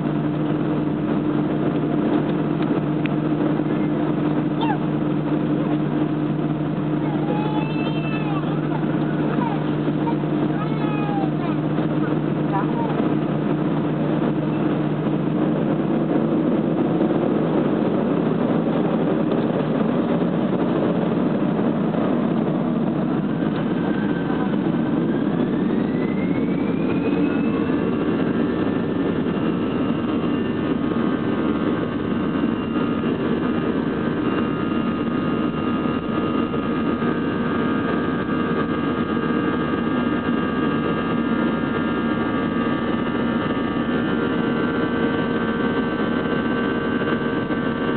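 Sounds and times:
jet engine rumble and whine: 0:00.0 - 0:47.9.

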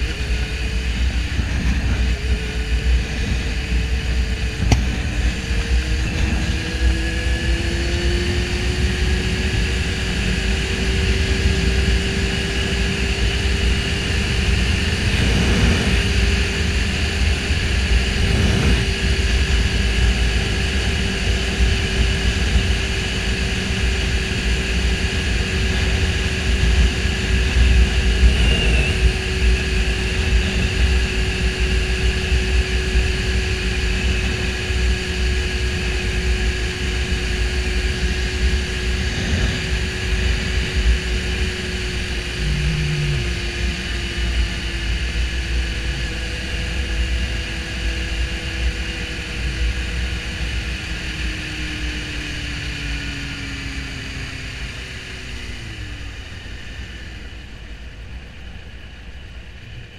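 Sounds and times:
motorcycle engine at speed: 0:00.0 - 0:59.9
wind rumble on microphone: 0:00.0 - 0:59.9.

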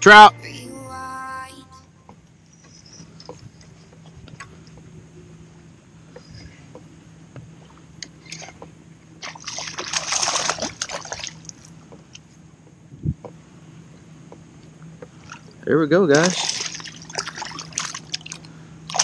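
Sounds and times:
water sloshing: 0:07.5 - 0:12.2, 0:15.0 - 0:19.0
fish thrashing and splashing: 0:09.2 - 0:11.6, 0:16.1 - 0:19.0.

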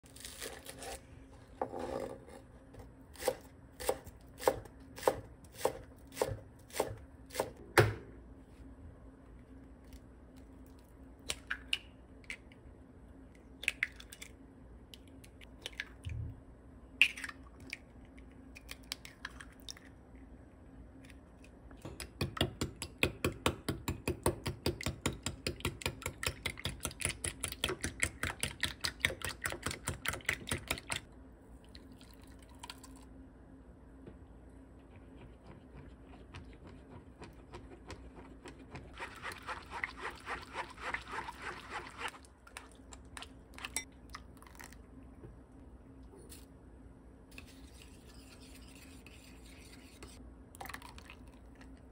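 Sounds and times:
whisk beating eggs in bowl: 0:35.0 - 0:42.2.

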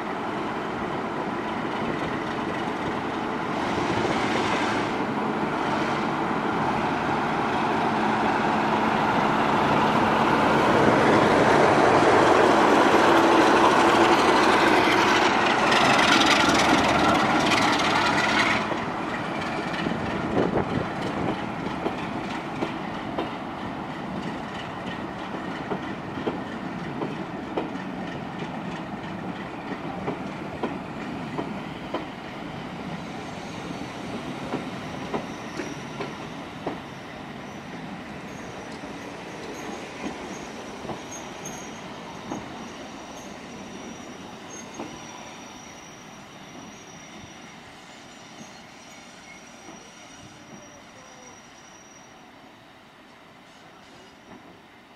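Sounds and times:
diesel locomotive engine working hard: 0:00.0 - 0:51.6
wheels clacking over rail joints: 0:11.1 - 0:23.4.

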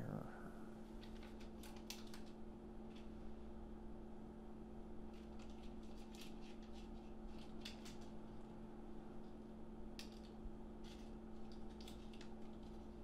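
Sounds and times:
faint steady hum: 0:00.0 - 0:13.0
small clicks and rustles: 0:00.9 - 0:03.2, 0:05.1 - 0:08.5, 0:10.0 - 0:13.0.

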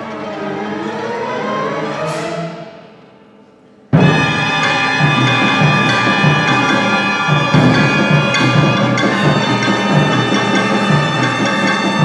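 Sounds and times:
orchestra playing held notes: 0:04.0 - 0:12.0
percussion strokes: 0:04.0 - 0:12.0.

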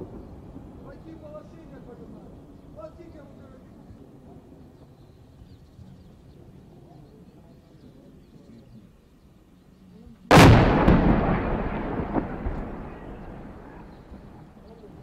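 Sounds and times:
quiet outdoor background: 0:00.0 - 0:15.0
artillery blast: 0:10.3 - 0:14.7
rumbling echo: 0:10.3 - 0:15.0.

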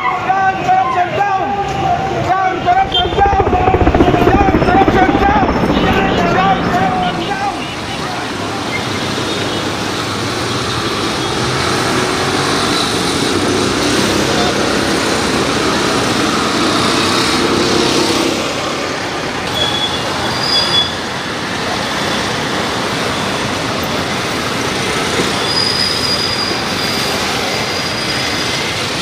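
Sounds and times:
high-pitched squeals: 0:02.6 - 0:07.8
street traffic noise: 0:06.7 - 0:29.0.

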